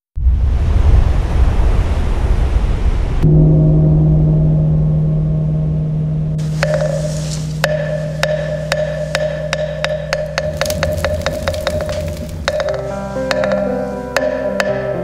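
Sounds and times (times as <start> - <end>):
large bell ringing: 3.2 - 15.0
sharp wooden knocks: 6.4 - 15.0.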